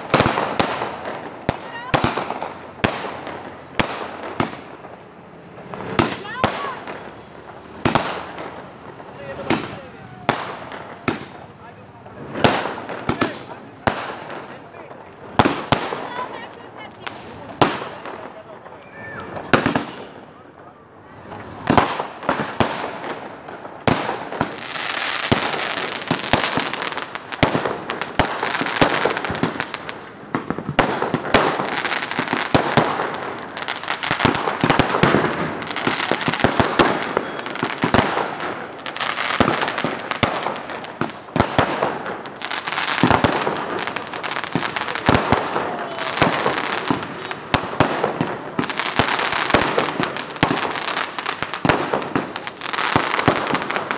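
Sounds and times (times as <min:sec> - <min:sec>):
aerial fireworks bursting: 0:00.0 - 0:18.5, 0:21.2 - 0:53.9
firecrackers banging and crackling: 0:00.0 - 0:53.9.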